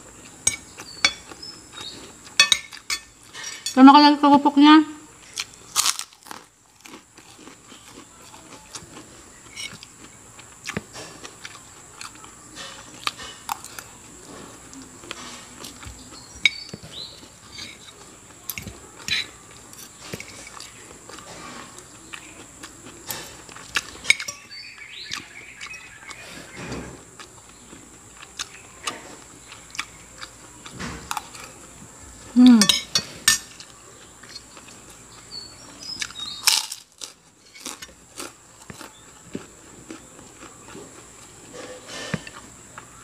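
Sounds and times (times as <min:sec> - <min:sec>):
cutlery clinking on a plate: 0:00.4 - 0:01.4, 0:02.4 - 0:03.8, 0:16.4 - 0:20.6, 0:24.0 - 0:24.5, 0:32.6 - 0:33.7.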